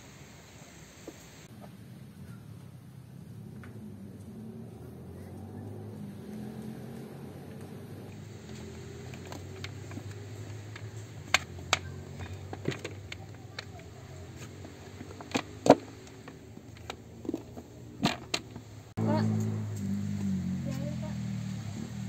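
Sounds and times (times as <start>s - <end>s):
collapsible bucket clicking and popping: 8.4s - 18.7s.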